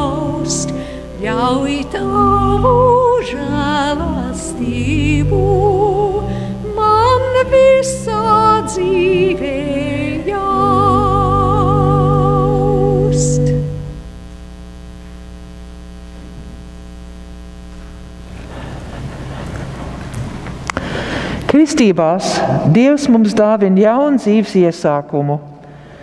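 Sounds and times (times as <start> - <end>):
women singing with vibrato: 0.0 - 13.9
church organ: 0.0 - 14.5
low steady hum: 0.0 - 26.0.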